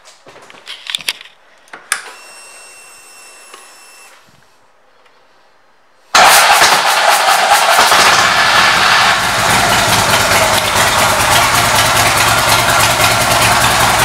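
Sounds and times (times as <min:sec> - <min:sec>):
fuel pump whine: 0:06.2 - 0:14.0
motorcycle engine running: 0:06.2 - 0:14.0.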